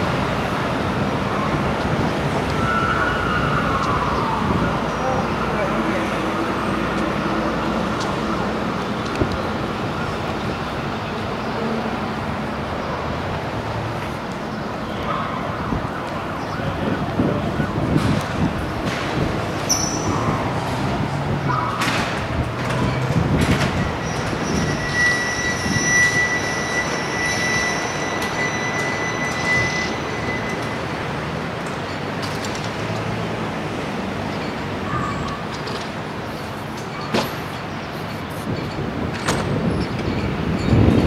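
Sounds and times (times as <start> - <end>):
street traffic noise: 0.0 - 41.0.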